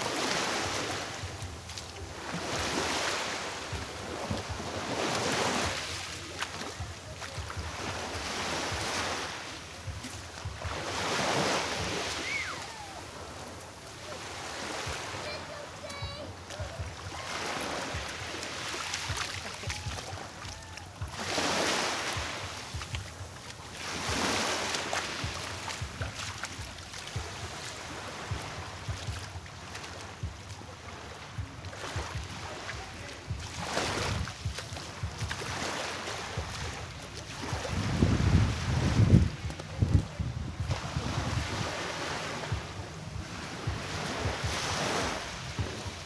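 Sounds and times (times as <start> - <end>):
small waves: 0.0 - 46.0
wind buffeting microphone: 36.3 - 46.0.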